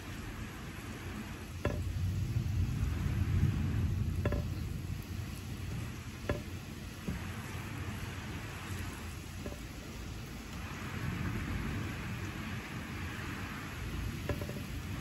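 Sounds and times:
distant thunder rumble: 0:00.0 - 0:15.0
steady rain: 0:00.0 - 0:15.0
drops ticking: 0:04.0 - 0:07.3, 0:08.7 - 0:10.6, 0:14.2 - 0:15.0.

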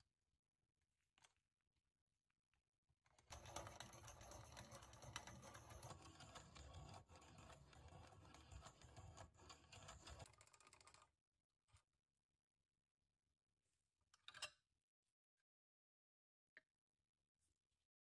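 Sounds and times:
pencil sharpener shaving wood: 0:03.3 - 0:10.4.

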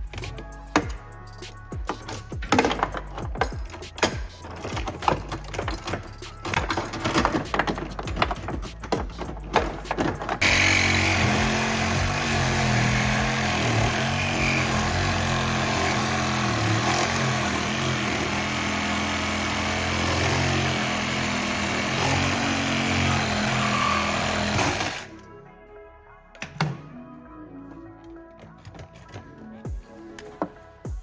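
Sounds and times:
power tool clicking and humming: 0:10.4 - 0:25.1.

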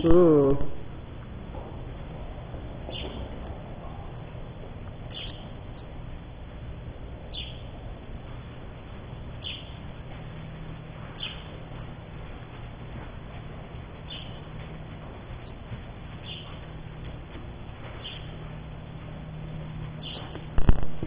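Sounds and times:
low steady hum: 0:00.0 - 0:21.0
small bird chirping: 0:02.9 - 0:03.3, 0:05.1 - 0:05.6, 0:07.3 - 0:07.7, 0:09.4 - 0:09.8, 0:11.1 - 0:11.6, 0:14.0 - 0:14.5, 0:16.2 - 0:16.7, 0:18.0 - 0:18.5, 0:20.0 - 0:20.4.

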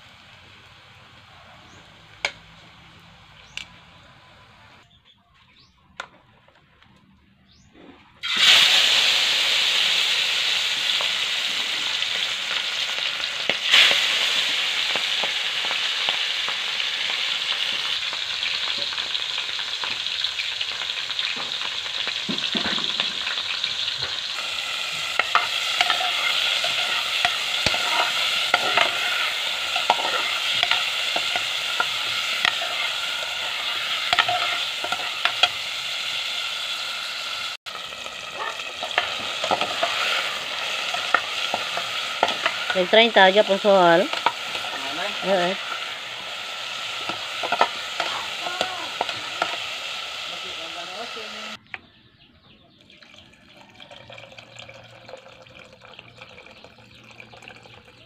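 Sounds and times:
fish deep-frying in hot oil: 0:00.0 - 0:04.8, 0:08.2 - 0:51.6, 0:52.8 - 0:58.0
crackling and popping sauteing: 0:00.0 - 0:51.9, 0:52.8 - 0:58.0.

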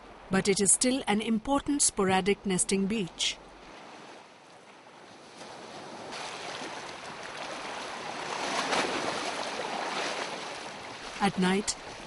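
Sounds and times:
surf washing on beach: 0:03.6 - 0:12.0.

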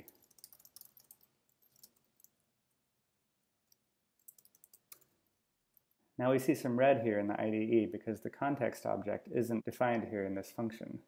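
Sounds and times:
computer keyboard typing clicks: 0:00.0 - 0:02.3, 0:04.2 - 0:05.1.

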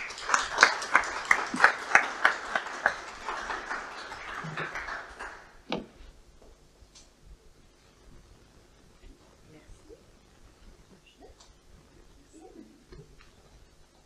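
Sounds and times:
applause with hand claps: 0:00.0 - 0:05.7.

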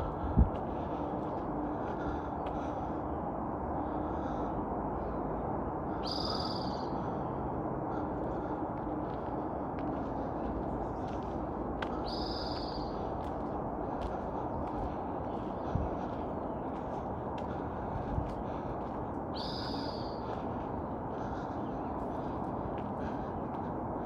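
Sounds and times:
low background rumble: 0:00.0 - 0:24.0
bird giving harsh calls: 0:19.4 - 0:20.2.

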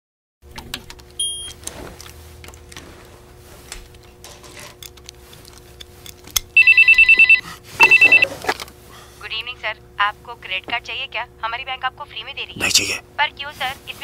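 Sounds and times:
faint clicks and handling noises: 0:03.7 - 0:06.4
short electronic beep: 0:06.6 - 0:08.3
mobile phone ringing: 0:06.6 - 0:08.4.

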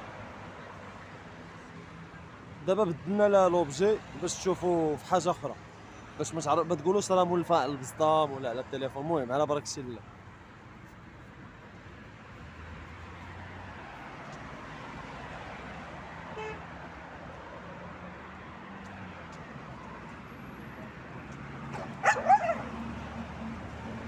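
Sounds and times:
road traffic hum: 0:00.0 - 0:24.0
dog barking: 0:21.8 - 0:22.7.

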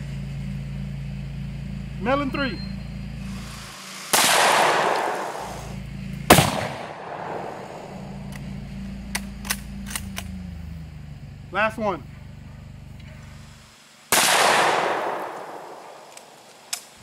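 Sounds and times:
rifle shots: 0:03.3 - 0:08.4, 0:14.1 - 0:16.9.

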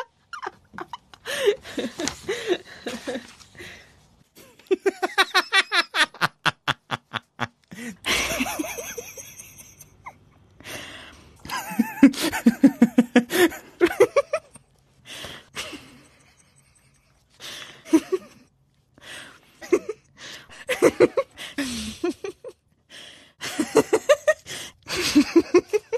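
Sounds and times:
people laughing: 0:04.4 - 0:10.2.

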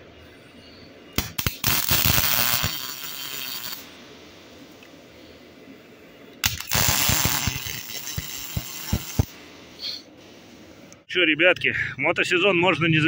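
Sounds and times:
arc welder crackling: 0:01.2 - 0:04.0, 0:06.4 - 0:09.5
welding arc sputtering and hissing: 0:01.2 - 0:04.0, 0:06.4 - 0:10.4.

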